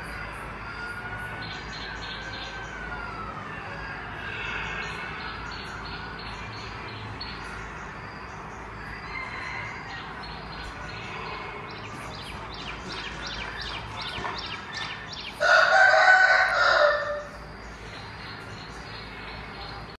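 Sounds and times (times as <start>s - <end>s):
rooster crowing: 8.8s - 11.7s, 15.2s - 17.6s.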